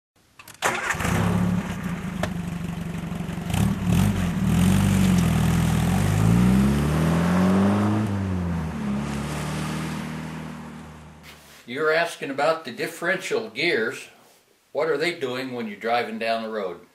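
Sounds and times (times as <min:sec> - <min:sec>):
car engine revving: 0:00.7 - 0:11.3.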